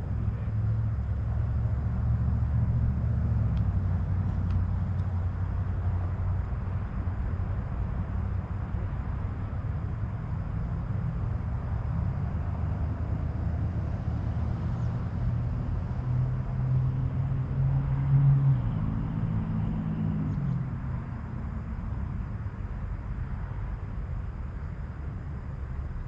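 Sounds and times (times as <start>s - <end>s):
road traffic rumble: 0.0s - 26.0s
vehicle engine passing by: 11.4s - 22.3s.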